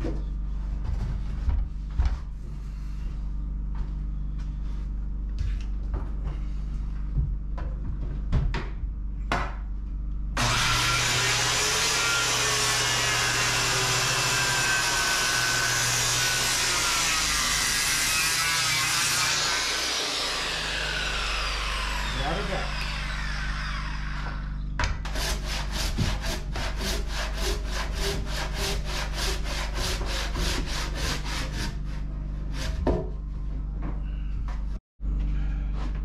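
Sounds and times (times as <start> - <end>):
circular saw cutting wood: 10.4 - 32.8.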